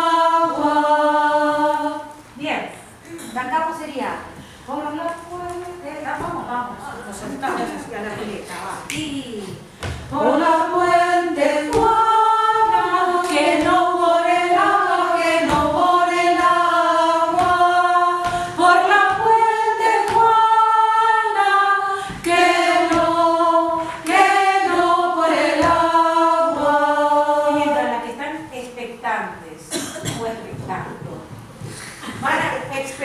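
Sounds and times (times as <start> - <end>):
woman singing unaccompanied: 4.7 - 29.0.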